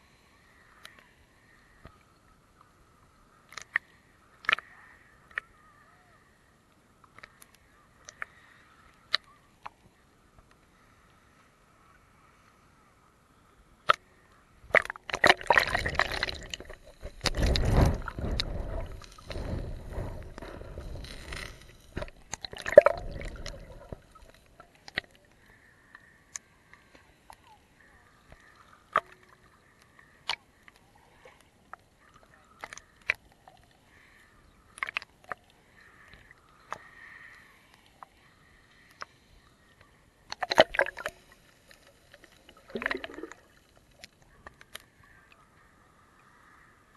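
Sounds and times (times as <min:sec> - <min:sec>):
small clicks and ticks: 0:00.7 - 0:02.8, 0:03.4 - 0:05.5, 0:06.7 - 0:11.2, 0:16.3 - 0:45.5
seawater sloshing and gurgling: 0:14.7 - 0:24.6, 0:40.3 - 0:41.4, 0:42.1 - 0:43.9.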